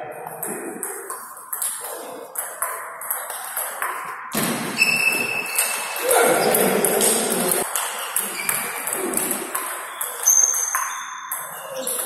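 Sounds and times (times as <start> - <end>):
shoe squeak: 4.7 - 12.0.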